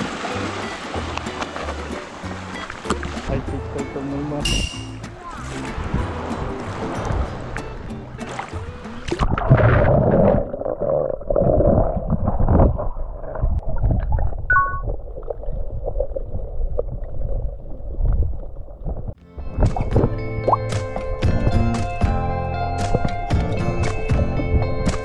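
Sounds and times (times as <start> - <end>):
water splashing: 0.0 - 21.9
underwater gurgling and bubbling: 8.2 - 19.2.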